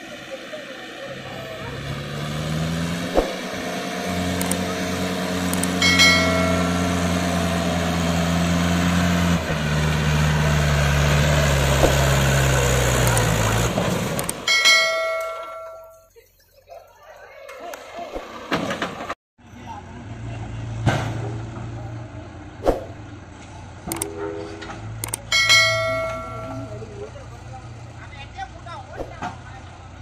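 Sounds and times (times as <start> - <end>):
tractor diesel engine labouring: 0.0 - 30.0
bell-like ding: 5.7 - 7.5, 14.5 - 16.1, 25.3 - 26.9.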